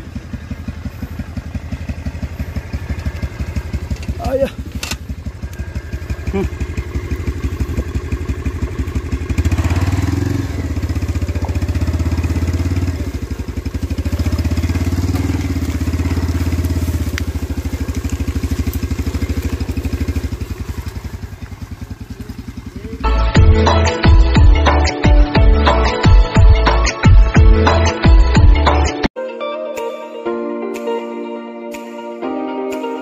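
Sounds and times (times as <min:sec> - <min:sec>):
motorcycle engine revving: 0:00.0 - 0:28.8
music: 0:23.0 - 0:33.0.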